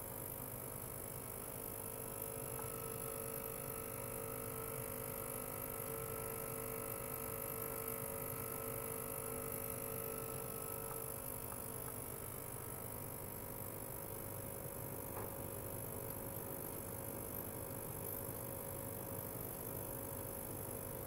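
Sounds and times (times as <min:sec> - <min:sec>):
ultrasonic cleaner humming: 0:06.9 - 0:13.4.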